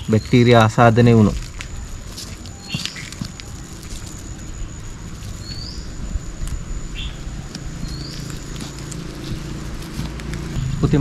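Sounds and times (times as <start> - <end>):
high insect whine: 0.0 - 11.0
low steady rumble: 0.0 - 11.0
short rising bird chirps: 4.6 - 6.1, 6.8 - 8.6.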